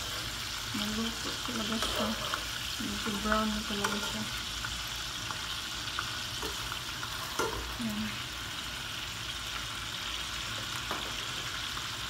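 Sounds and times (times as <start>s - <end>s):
chicken sizzling in frying pan: 0.0s - 12.0s
metal tongs clicking on pan: 3.4s - 4.2s.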